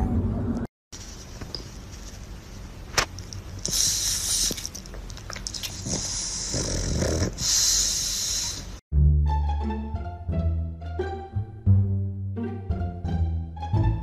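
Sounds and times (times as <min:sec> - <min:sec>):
dog breathing wheezily: 0:03.7 - 0:04.7, 0:05.7 - 0:08.8.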